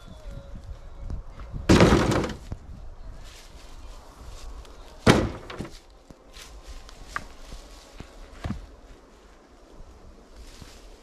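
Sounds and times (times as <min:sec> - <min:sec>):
firewood clattering into wheelbarrow: 0:01.7 - 0:02.6, 0:05.0 - 0:05.8.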